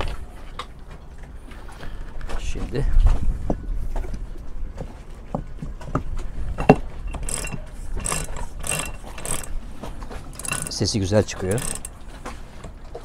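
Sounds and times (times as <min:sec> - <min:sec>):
winch ratchet clicking: 0:07.1 - 0:12.1.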